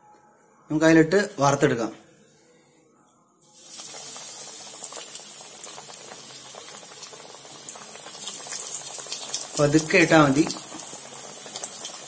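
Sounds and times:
oil sizzling and popping: 0:03.5 - 0:12.0.

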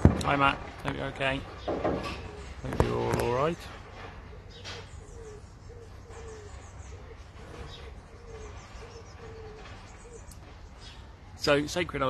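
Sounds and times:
bird hooting call: 0:04.3 - 0:10.4.

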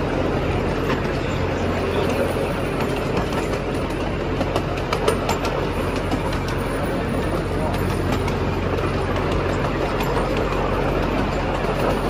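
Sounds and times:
train rumbling in motion: 0:00.0 - 0:12.0
wheels clicking: 0:00.0 - 0:12.0.

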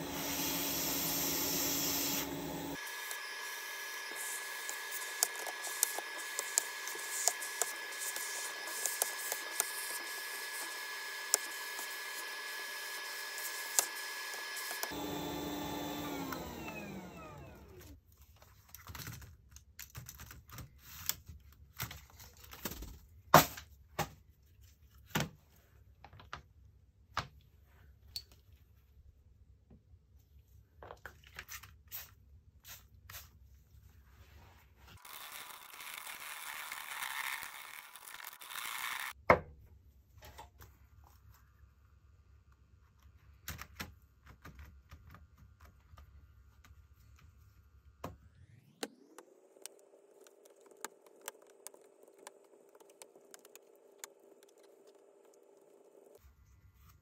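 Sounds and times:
hot air gun hissing: 0:00.0 - 0:15.0
fan winding down: 0:13.7 - 0:17.9.

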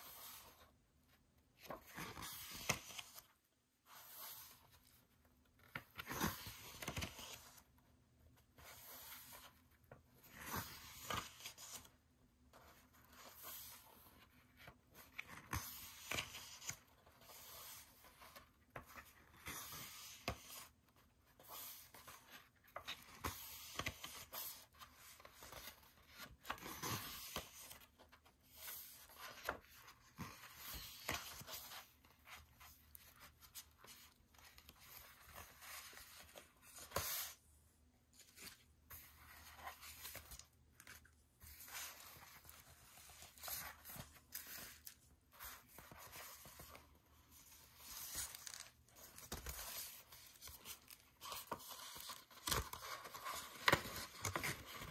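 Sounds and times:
paper rustling and sliding: 0:05.6 - 0:07.8.

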